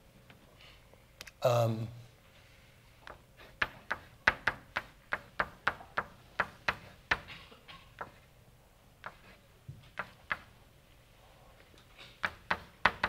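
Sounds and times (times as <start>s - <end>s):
chalk tapping on board: 3.0s - 7.3s, 8.0s - 8.2s, 9.0s - 10.5s, 12.2s - 13.0s.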